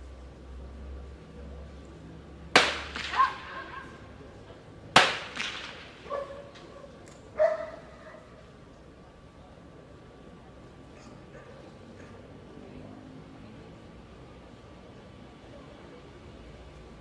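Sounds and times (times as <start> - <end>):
blank gunshots: 2.6 - 3.7, 5.0 - 6.0.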